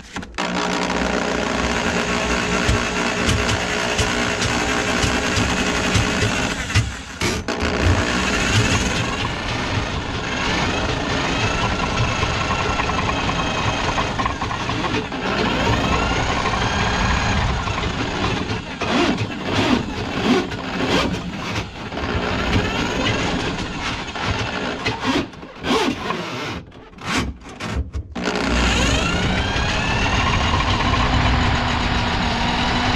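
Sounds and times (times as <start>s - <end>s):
drain cleaning machine running: 0.4s - 25.6s, 28.2s - 32.9s
knocking and clattering: 2.5s - 16.8s.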